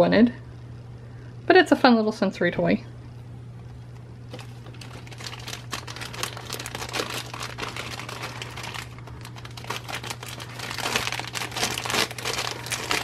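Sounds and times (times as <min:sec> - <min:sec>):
plastic bag crinkling: 0:04.3 - 0:13.0.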